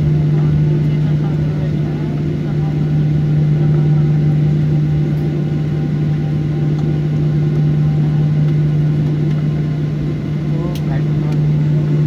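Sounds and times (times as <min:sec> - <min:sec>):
jet airliner cabin noise: 0:00.0 - 0:12.0.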